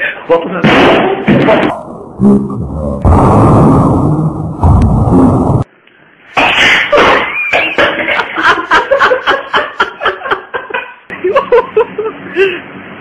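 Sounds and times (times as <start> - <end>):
people laughing hard: 7.0 - 12.1.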